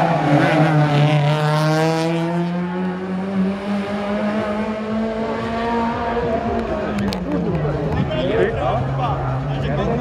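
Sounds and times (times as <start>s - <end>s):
rally car engine accelerating: 0.0s - 7.9s.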